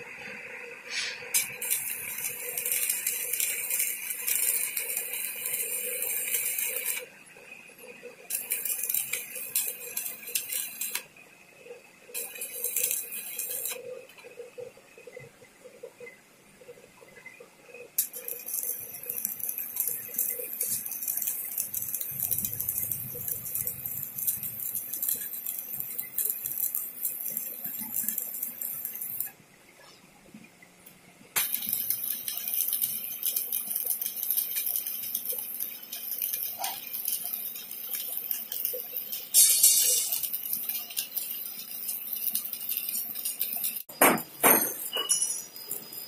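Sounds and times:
welding arc crackling: 0:00.0 - 0:16.0, 0:18.0 - 0:29.4, 0:31.3 - 0:46.0.

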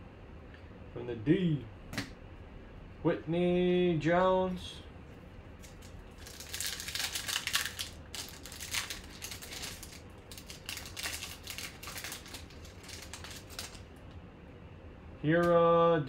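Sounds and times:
foil wrapper crinkling and tearing: 0:05.6 - 0:13.9.

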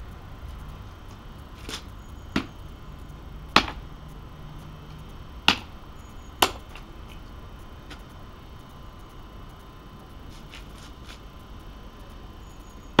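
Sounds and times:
axe knocking on wooden block: 0:03.6 - 0:03.8, 0:05.5 - 0:05.7.

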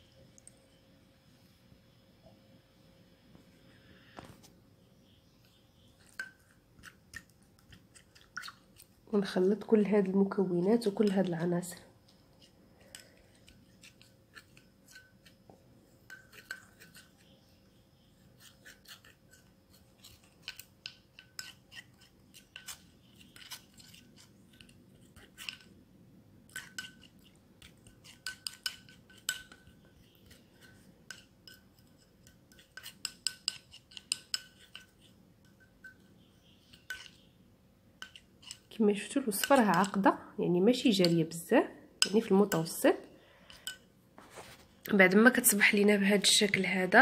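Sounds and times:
fork scraping a ceramic bowl: 0:05.9 - 0:08.9, 0:12.4 - 0:25.7, 0:26.5 - 0:37.2, 0:38.0 - 0:40.0.

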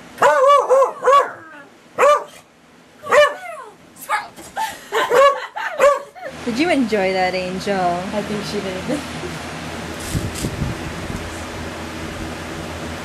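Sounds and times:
dog barking: 0:00.2 - 0:01.4, 0:02.0 - 0:02.4, 0:03.0 - 0:04.3, 0:05.0 - 0:06.3.

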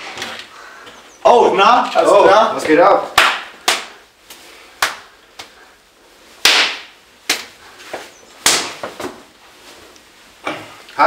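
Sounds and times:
hands slapping and clapping: 0:03.1 - 0:05.6, 0:06.4 - 0:07.5, 0:08.4 - 0:09.0.

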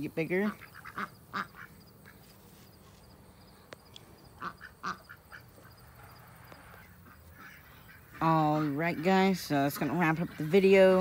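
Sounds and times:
ducks quacking: 0:00.2 - 0:02.4, 0:04.4 - 0:11.0.

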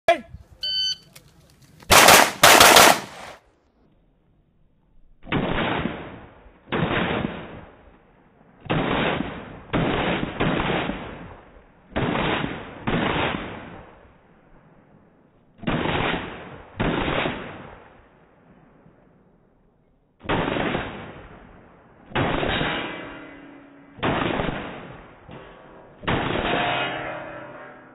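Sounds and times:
pistol shots: 0:01.9 - 0:03.4.

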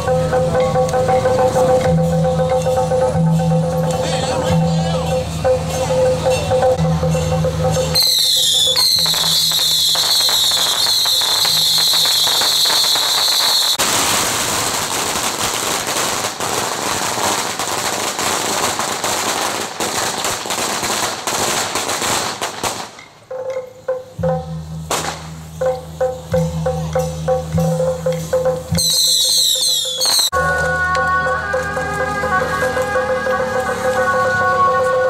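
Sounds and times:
firecrackers crackling: 0:00.5 - 0:34.2
shrill descending whistle: 0:08.0 - 0:13.8, 0:28.8 - 0:30.3.

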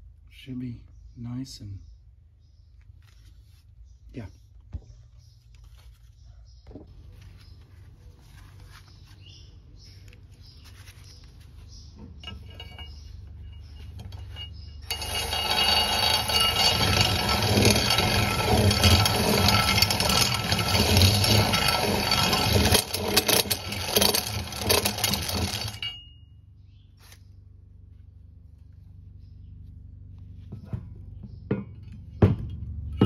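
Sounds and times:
drill drilling into metal: 0:14.9 - 0:25.9.

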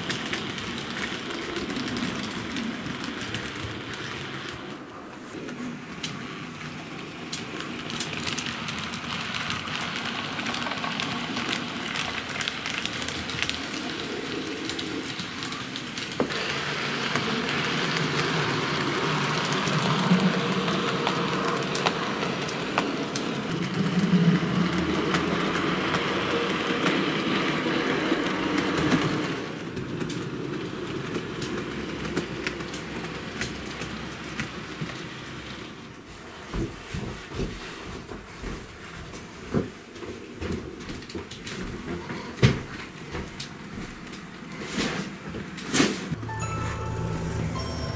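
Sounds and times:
model train running: 0:00.0 - 0:36.4, 0:46.3 - 0:47.9
wheels clicking on rails: 0:00.0 - 0:47.9.

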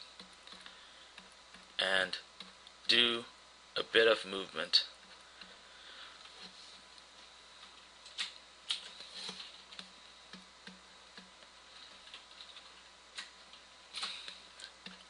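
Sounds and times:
computer mouse clicking: 0:07.6 - 0:15.0.

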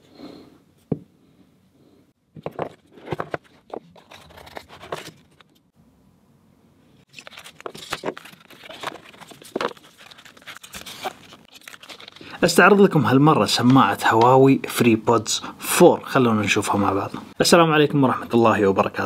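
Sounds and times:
cardboard box rustling and scraping: 0:02.4 - 0:05.4, 0:07.2 - 0:11.4.

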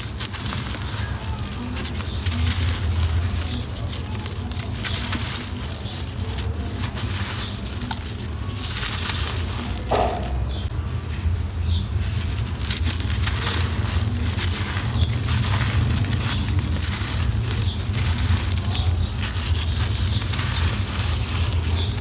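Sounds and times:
sand block crumbling in hands: 0:00.0 - 0:10.7
gritty hands rubbing together: 0:00.0 - 0:22.0.

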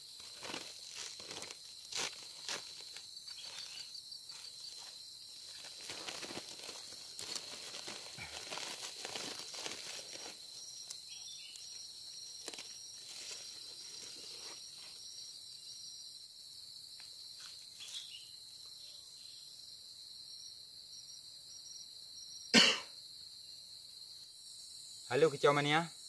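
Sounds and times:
insects droning: 0:00.0 - 0:26.0
faint rustles: 0:00.2 - 0:11.7
person coughing: 0:22.5 - 0:23.0.

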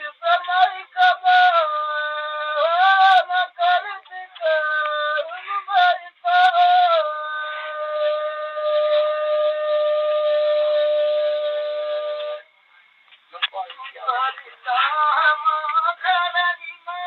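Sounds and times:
solo voice singing folk song: 0:00.0 - 0:12.5, 0:13.4 - 0:17.0.

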